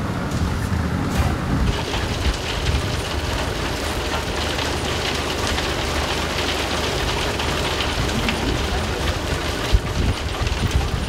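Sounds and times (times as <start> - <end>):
low mechanical hum: 0.0 - 11.0
crushed stone rattling: 1.7 - 11.0.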